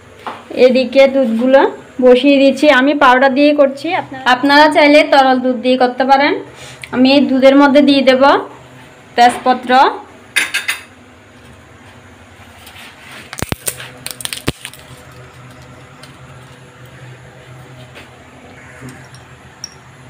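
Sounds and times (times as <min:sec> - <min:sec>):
kitchenware clicks and clinks: 0:10.4 - 0:10.9.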